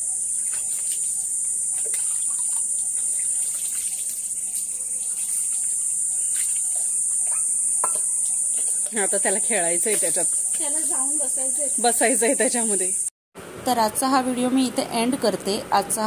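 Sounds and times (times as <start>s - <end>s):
high-pitched insect chorus: 0.0s - 13.1s
faint water splashes: 0.4s - 6.9s.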